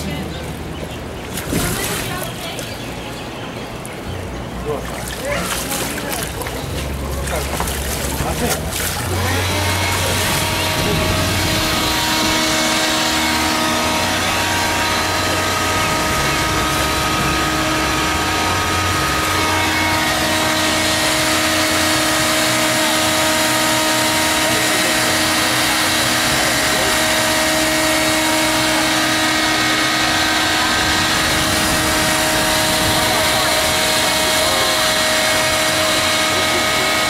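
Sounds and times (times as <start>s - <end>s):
electric air blower whirring: 9.1s - 37.0s.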